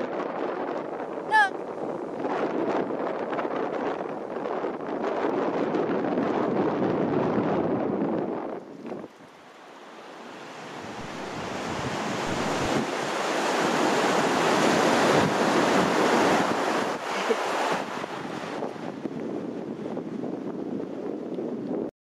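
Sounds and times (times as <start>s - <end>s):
surf breaking on a beach: 0.0s - 21.9s
wind buffeting microphone: 0.0s - 21.9s.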